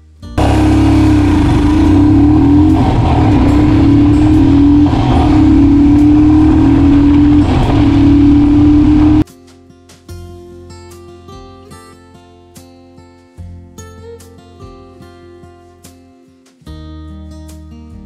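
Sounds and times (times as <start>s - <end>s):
motorcycle engine accelerating: 0.4s - 9.2s.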